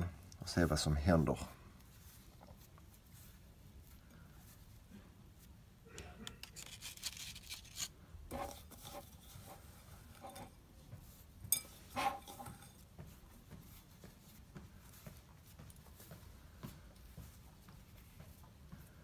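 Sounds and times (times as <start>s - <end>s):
hands scraping powder in bowl: 6.3s - 16.0s.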